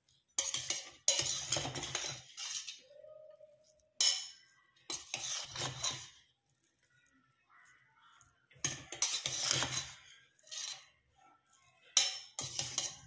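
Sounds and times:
metal spatula scraping a pot: 0.0s - 3.0s, 3.6s - 13.0s.

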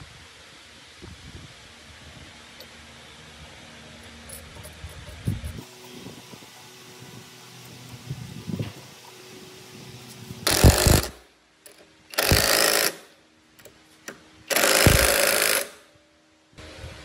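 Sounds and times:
impact driver hammering: 10.5s - 11.2s, 12.1s - 13.0s, 14.5s - 15.8s.

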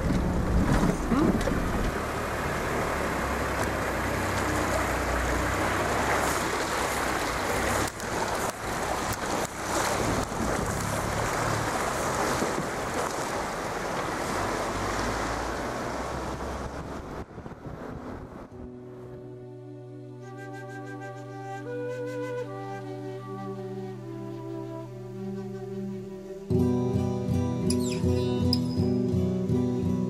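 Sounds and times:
water splashing against vehicle: 0.0s - 18.6s
vehicle engine running low: 0.0s - 19.8s.

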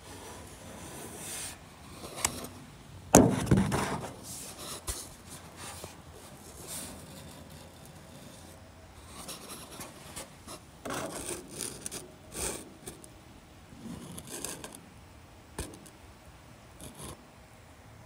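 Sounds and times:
camera scraping and rubbing: 0.1s - 2.6s, 3.4s - 13.0s, 13.8s - 14.8s.

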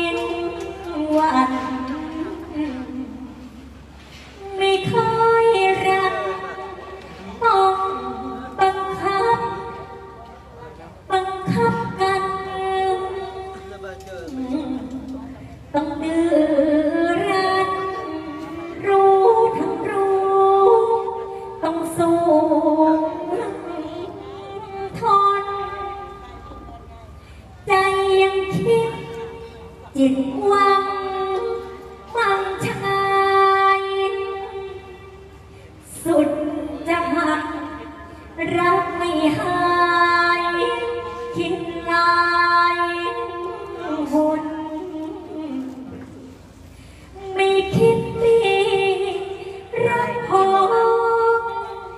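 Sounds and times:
woman singing unaccompanied: 0.0s - 3.8s, 4.4s - 26.9s, 27.6s - 46.4s, 47.2s - 51.9s
woman singing long held notes: 47.1s - 51.9s.

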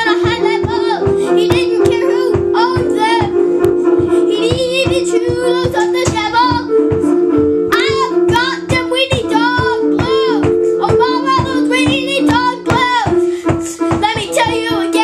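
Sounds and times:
child singing: 0.0s - 7.1s, 7.7s - 15.0s
electronic keyboard notes: 0.0s - 15.0s
steady beat: 0.0s - 15.0s.

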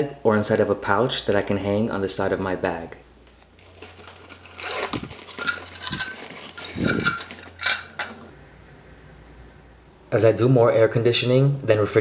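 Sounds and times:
canvas pouch rustling: 3.6s - 7.5s
metal clinks and knocks: 3.8s - 8.3s.

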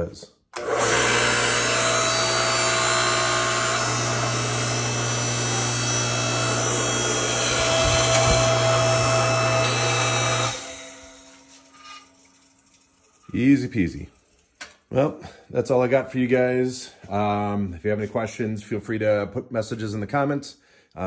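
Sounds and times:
electric motor and hydraulic pump humming: 0.6s - 13.3s.

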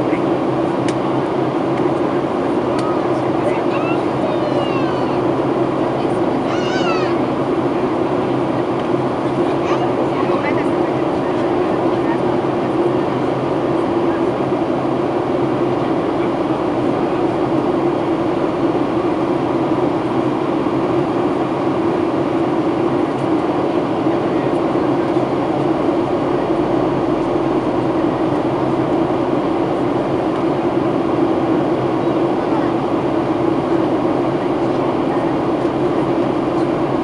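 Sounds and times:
airplane cabin engine drone: 0.0s - 37.0s
constant low hum: 0.0s - 37.0s.

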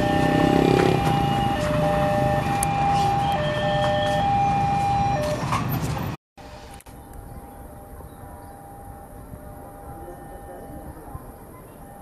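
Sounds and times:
two-tone level crossing alarm: 0.0s - 5.5s.

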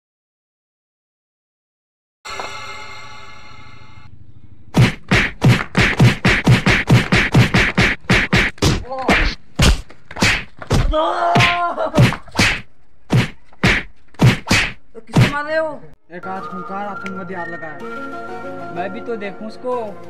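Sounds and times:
punches and slaps landing: 4.7s - 15.5s
man crying out: 10.9s - 12.0s.

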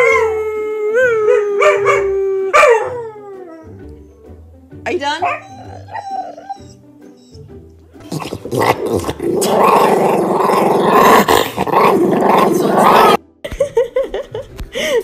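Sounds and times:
small dog growling: 8.0s - 13.2s.

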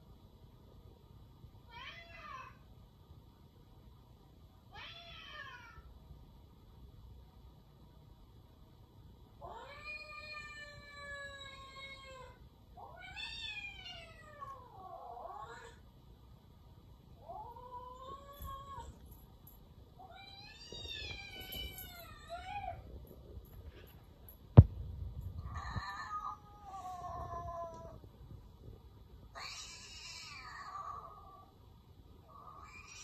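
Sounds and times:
cat meowing: 29.3s - 31.5s.

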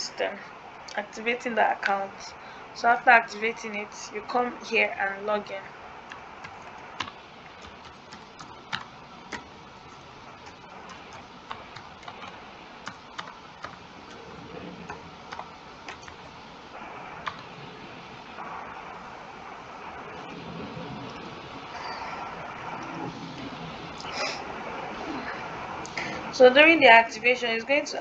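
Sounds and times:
faint steady hiss: 0.0s - 28.0s
keyboard clicks: 6.1s - 9.5s, 10.4s - 13.8s, 14.8s - 16.2s.

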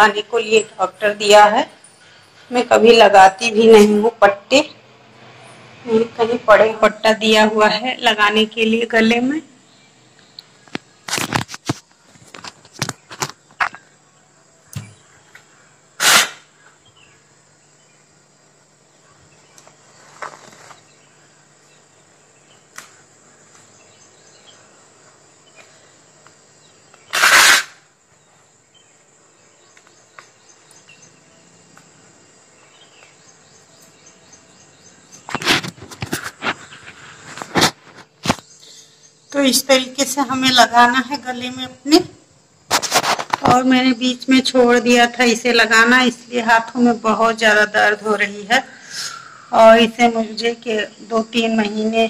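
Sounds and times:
faint steady hum: 0.0s - 52.0s
velcro strap ripping: 16.0s - 16.5s, 27.1s - 27.8s.

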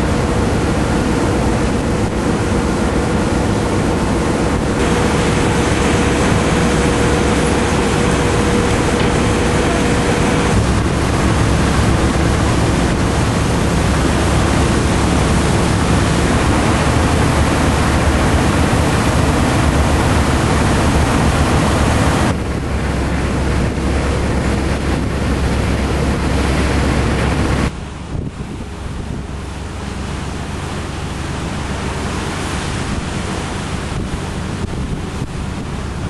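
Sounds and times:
thin whine: 0.0s - 27.7s
low engine drone: 0.0s - 36.0s
wake rushing against hull: 0.0s - 36.0s
wind: 0.0s - 36.0s.

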